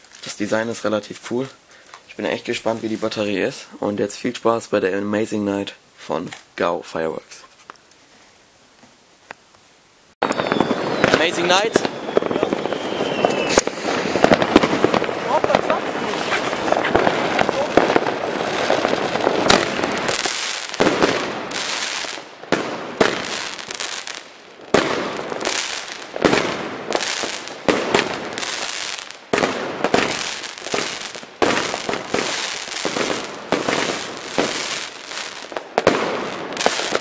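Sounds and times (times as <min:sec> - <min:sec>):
firework bangs: 0:10.2 - 0:37.0
firework hiss: 0:10.2 - 0:37.0.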